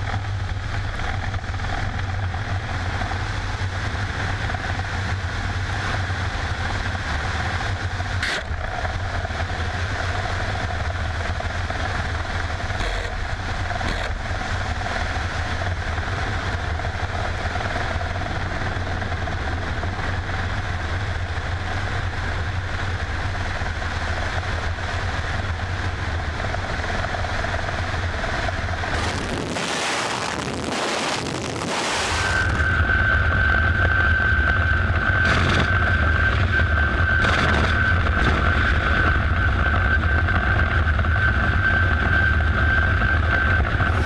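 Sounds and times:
helicopter engine and rotor drone: 0:00.0 - 0:44.0.

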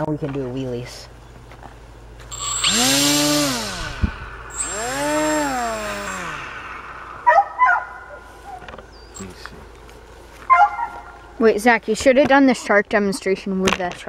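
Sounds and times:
electric motor whine: 0:02.2 - 0:08.8
propeller air rush: 0:02.3 - 0:08.6.

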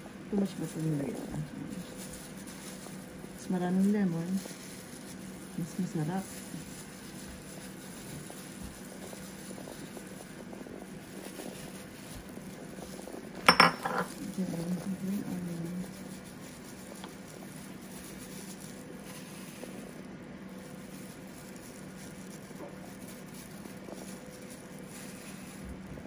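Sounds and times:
low steady hum: 0:00.0 - 0:26.0
dishware clink: 0:13.5 - 0:14.1.

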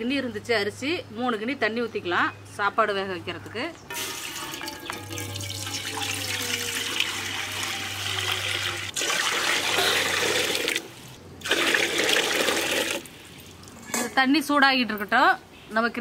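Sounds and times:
water pouring into a metal pot: 0:03.9 - 0:10.8, 0:11.4 - 0:13.1.

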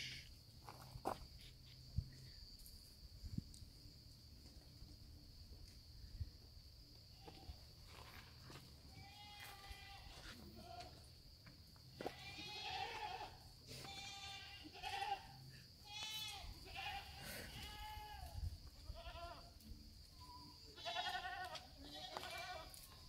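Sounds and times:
goats bleating: 0:09.0 - 0:11.0, 0:12.0 - 0:19.5, 0:20.8 - 0:22.8.

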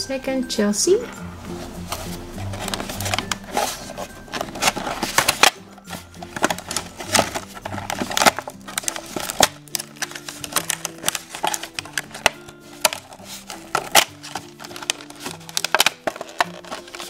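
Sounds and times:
light background music: 0:00.0 - 0:17.0
plastic packaging crackling: 0:01.8 - 0:17.0.

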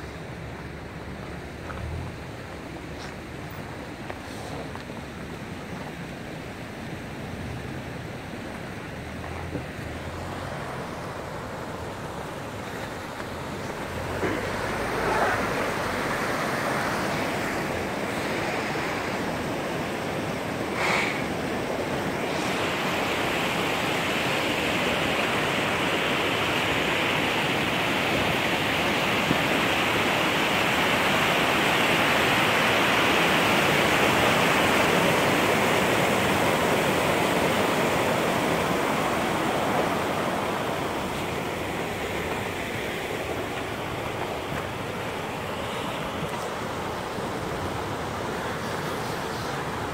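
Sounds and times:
stream flowing over rocks: 0:00.0 - 0:49.9.

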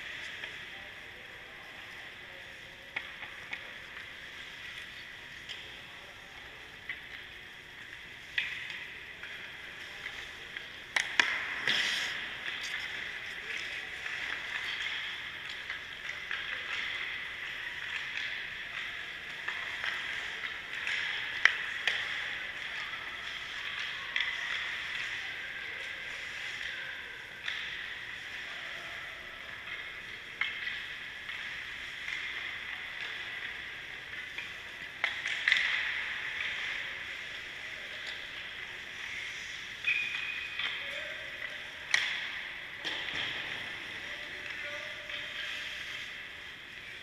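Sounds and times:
skates scraping on ice: 0:00.0 - 0:28.5
puck and sticks clacking: 0:00.0 - 0:47.0.

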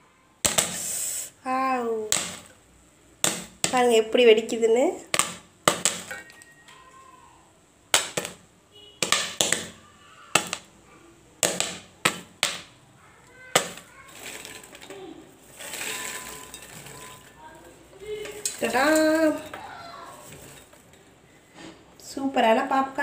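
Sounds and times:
popcorn popping: 0:00.4 - 0:07.0, 0:07.9 - 0:10.8, 0:11.4 - 0:21.2
popcorn rustling into bowl: 0:03.2 - 0:07.1, 0:11.4 - 0:22.2.

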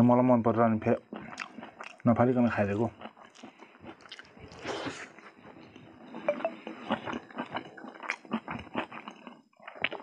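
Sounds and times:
chewing and wet mouth smacks: 0:01.1 - 0:02.1, 0:02.7 - 0:10.0.

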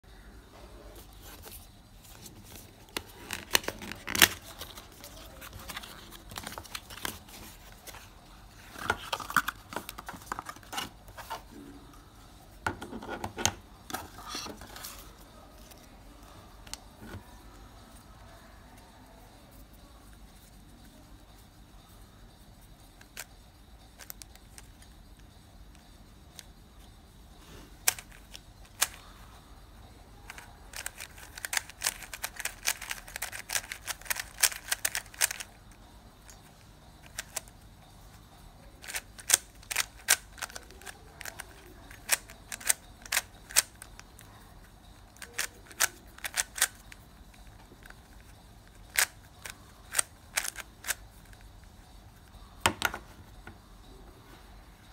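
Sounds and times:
speed cube layers clicking: 0:27.8 - 0:29.0, 0:30.2 - 0:37.6, 0:38.8 - 0:44.3, 0:45.1 - 0:52.4.

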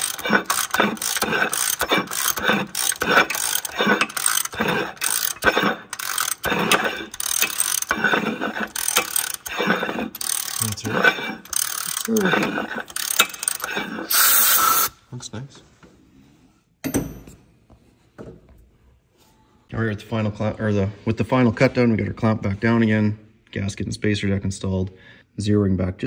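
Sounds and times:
cutter scraping cast iron: 0:00.0 - 0:14.9.

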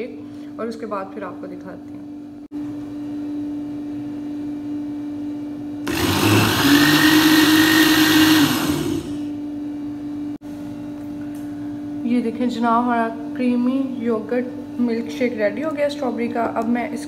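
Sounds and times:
electric blender whirring: 0:05.8 - 0:09.4.

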